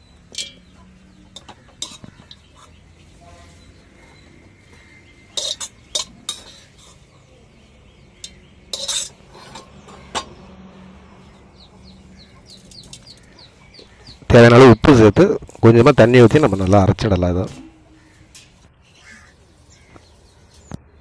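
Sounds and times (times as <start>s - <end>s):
metal kitchenware clinking: 0.3s - 3.7s, 5.2s - 7.2s, 8.1s - 10.4s, 16.3s - 18.6s.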